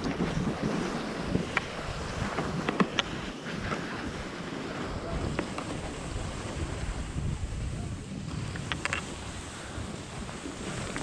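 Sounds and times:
skis scraping over snow: 0.0s - 11.0s
wind on microphone: 0.0s - 11.0s
ski edges clicking on snow: 8.2s - 9.4s, 10.3s - 11.0s.

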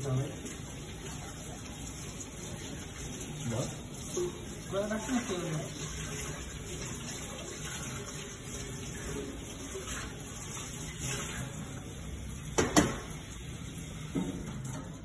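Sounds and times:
tap running into steel sink: 12.5s - 13.2s, 14.0s - 15.0s.

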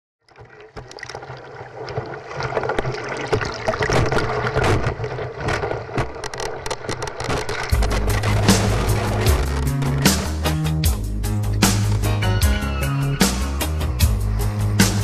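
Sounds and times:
wave water rushing and splashing: 0.4s - 10.6s.

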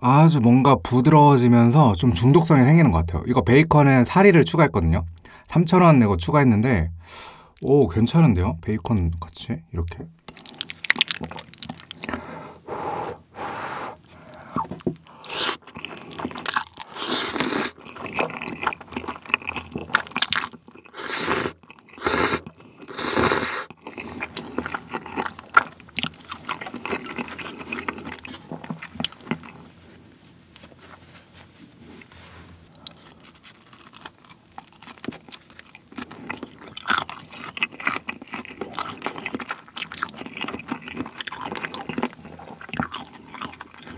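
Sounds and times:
wet chewing: 10.2s - 30.0s, 32.0s - 43.9s
noodle slurping: 10.3s - 25.7s.

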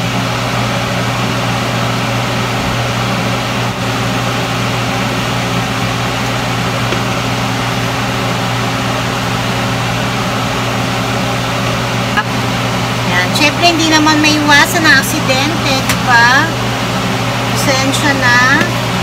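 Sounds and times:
electric motor humming: 11.6s - 19.0s.

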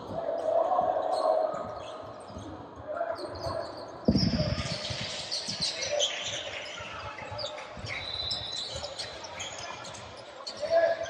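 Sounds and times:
sneakers squeaking: 3.2s - 11.0s.

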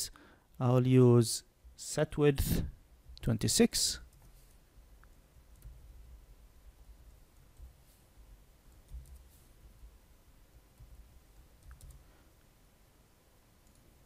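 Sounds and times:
keyboard and mouse clicks: 8.7s - 9.3s, 11.5s - 12.0s.

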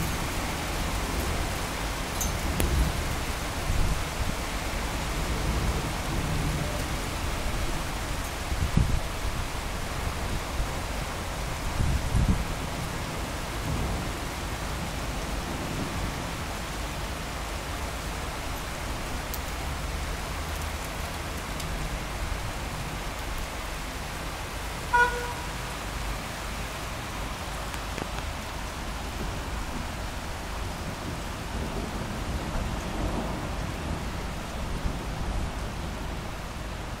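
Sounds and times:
steady rain: 0.0s - 37.0s
thunder rumbling: 29.0s - 36.4s.

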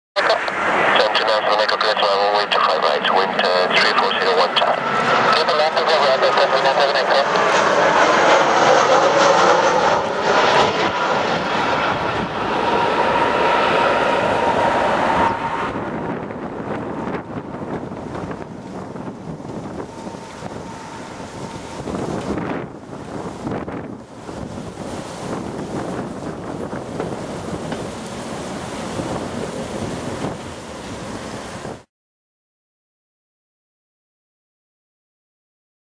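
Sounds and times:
jet engines whining: 0.2s - 31.9s
wind buffeting microphone: 10.0s - 31.8s.

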